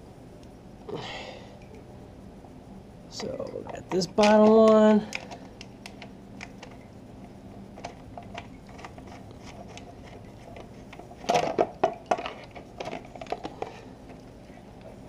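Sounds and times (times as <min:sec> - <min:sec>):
plastic clicks and rustles: 0:03.2 - 0:06.9, 0:07.7 - 0:15.0
plastic knocks and rattles: 0:07.8 - 0:13.7.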